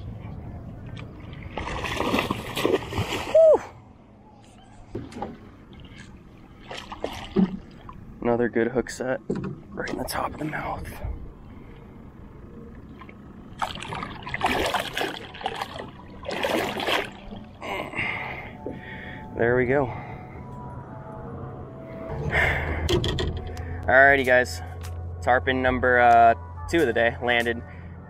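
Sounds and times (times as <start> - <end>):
fish splashing in water: 1.3 - 3.4, 13.5 - 17.5.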